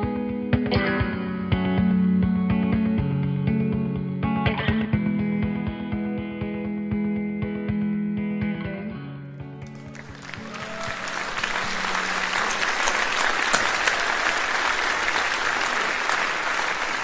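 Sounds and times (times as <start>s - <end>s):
audience applauding: 9.6s - 17.0s.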